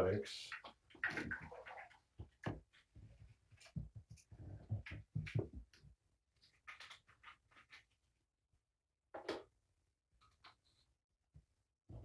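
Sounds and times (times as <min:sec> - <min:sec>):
items rustling and clicking: 0:00.5 - 0:08.0.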